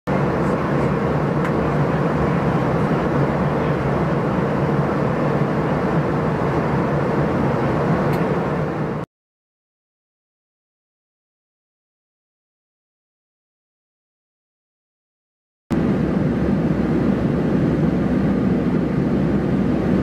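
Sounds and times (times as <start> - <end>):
aircraft engine drone in cabin: 0.1 - 9.1, 15.7 - 20.0.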